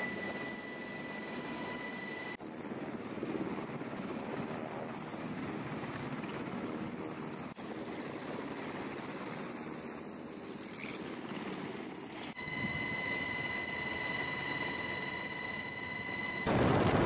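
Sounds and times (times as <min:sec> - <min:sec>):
high steady whine: 0:00.0 - 0:02.4, 0:12.3 - 0:17.0.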